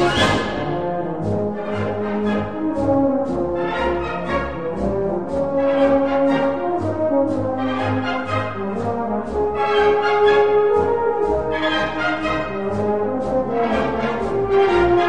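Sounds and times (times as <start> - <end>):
brass band playing a march: 0.0 - 15.0.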